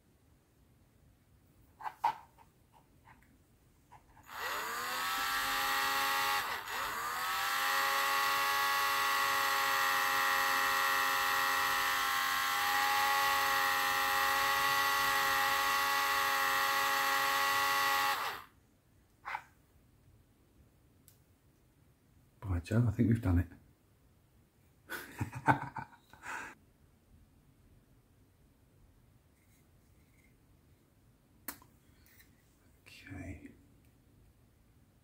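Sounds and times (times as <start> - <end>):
rotary tool whining: 4.2 - 18.5.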